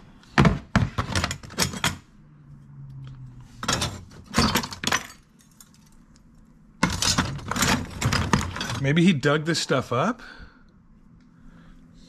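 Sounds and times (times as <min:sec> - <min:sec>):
metal tools clattering: 0:01.0 - 0:02.0, 0:03.6 - 0:05.9, 0:06.8 - 0:08.9.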